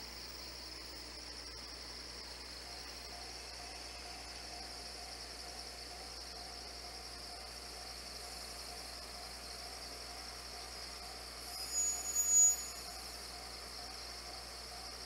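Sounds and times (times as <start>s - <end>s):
faint steady hum: 0.0s - 15.0s
insects chirring: 0.0s - 15.0s.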